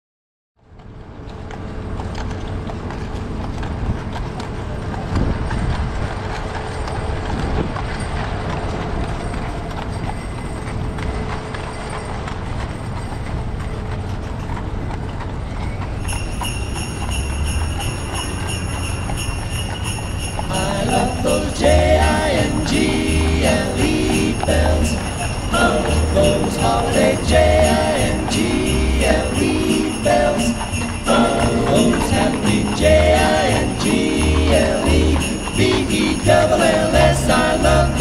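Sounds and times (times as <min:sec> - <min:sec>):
city street hum: 0:00.6 - 0:38.0
horse hooves clip-clopping: 0:00.6 - 0:38.0
bells ringing: 0:07.9 - 0:14.2, 0:16.0 - 0:38.0.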